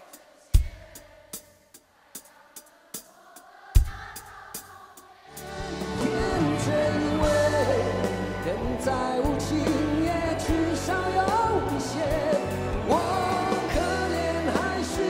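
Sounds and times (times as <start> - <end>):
band with drums: 0.0 - 2.3, 2.9 - 15.0
man singing: 5.8 - 15.0.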